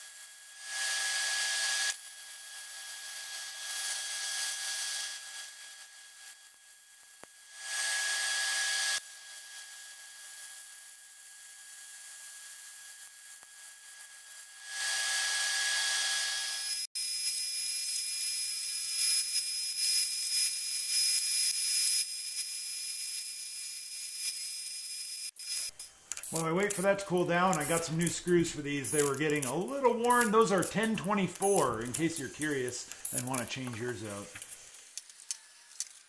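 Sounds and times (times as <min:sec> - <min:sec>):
arc welding crackling hiss: 0:00.0 - 0:07.6, 0:08.2 - 0:15.1, 0:16.5 - 0:36.0
angle grinder grinding steel: 0:11.7 - 0:36.0.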